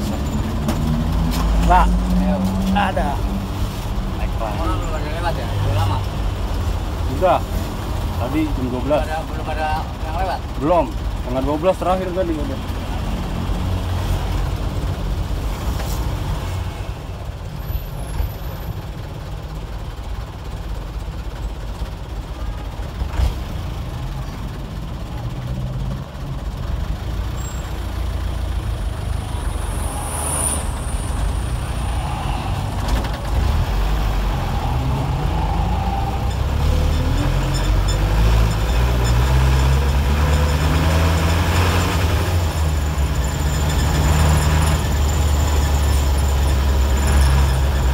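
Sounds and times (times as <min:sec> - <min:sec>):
bus diesel engine revving: 0:23.0 - 0:47.9.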